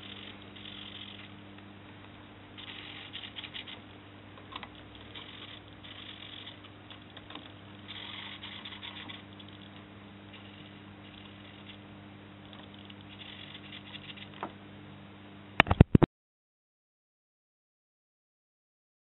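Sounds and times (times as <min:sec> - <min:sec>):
low hum: 0:00.0 - 0:16.1
servo motors buzzing: 0:02.6 - 0:03.8, 0:04.9 - 0:09.7, 0:12.5 - 0:14.4.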